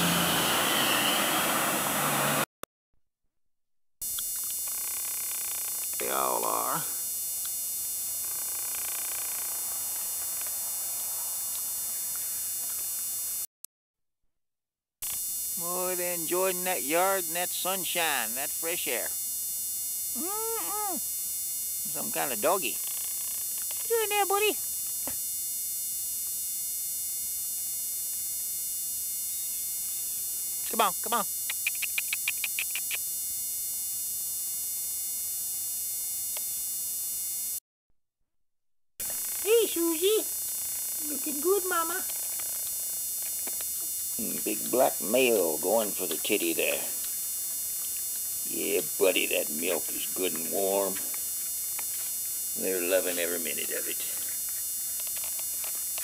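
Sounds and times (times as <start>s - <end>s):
electrical hum: 0.0s - 2.5s, 4.0s - 13.5s, 15.0s - 37.6s, 39.0s - 56.0s
tape hiss: 5.9s - 13.5s, 15.1s - 19.2s, 39.1s - 56.0s.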